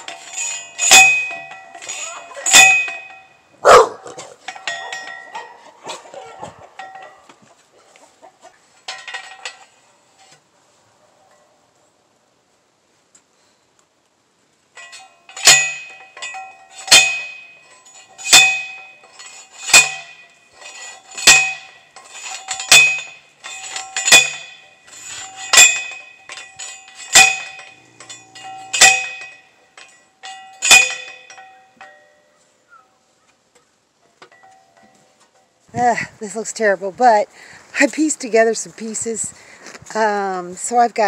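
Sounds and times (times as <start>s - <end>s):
light metal clinks: 0.0s - 5.6s, 6.8s - 7.3s, 14.8s - 32.4s, 34.0s - 36.5s
metal post clanging: 0.0s - 7.4s, 8.8s - 10.4s, 14.8s - 32.4s, 33.6s - 36.7s.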